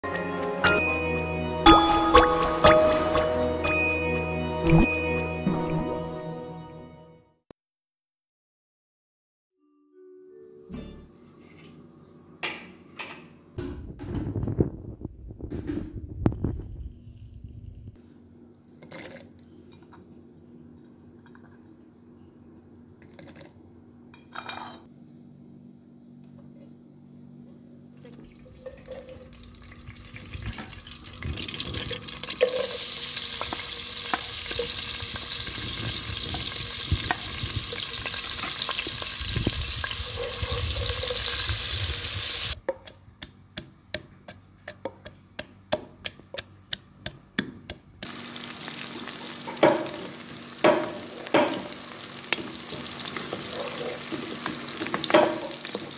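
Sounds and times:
onions sizzling in oil: 29.4 - 42.6, 48.0 - 55.9
spoon knocking against pot: 50.6 - 51.8, 54.9 - 55.6.

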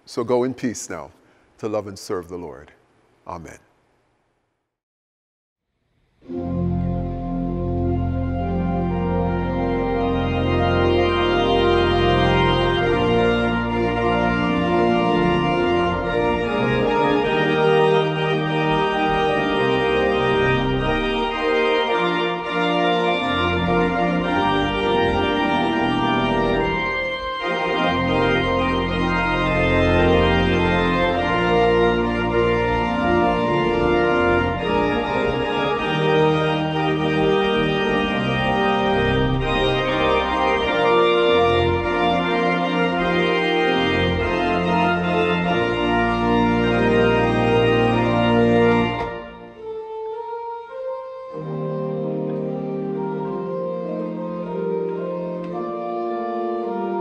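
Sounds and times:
pipe organ chords: 0.0 - 3.6, 6.0 - 57.0.

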